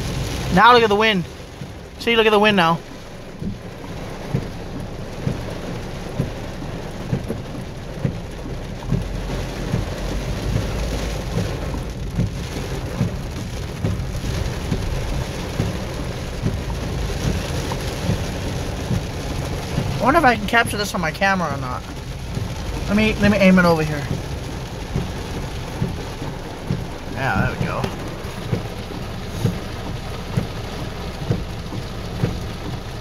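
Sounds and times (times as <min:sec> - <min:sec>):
heavy rain pouring: 0:00.0 - 0:33.0
thunder rumbling: 0:00.0 - 0:33.0.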